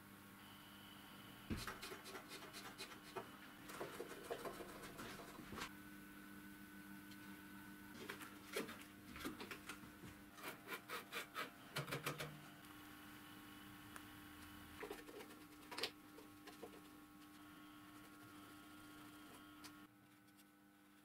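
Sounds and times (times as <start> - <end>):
faint hum: 0.0 - 21.0.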